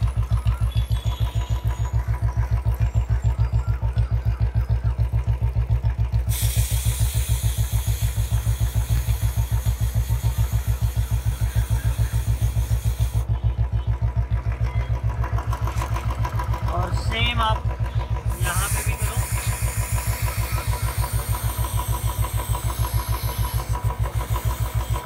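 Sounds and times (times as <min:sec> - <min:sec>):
motorcycle engine idling: 0:00.0 - 0:25.0
aerosol spray hissing: 0:06.3 - 0:13.2, 0:18.4 - 0:25.0.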